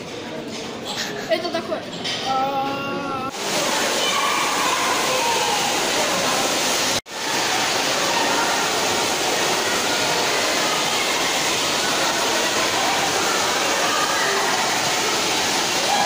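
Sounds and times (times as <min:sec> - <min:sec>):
water pouring into a pool: 0:03.3 - 0:16.0.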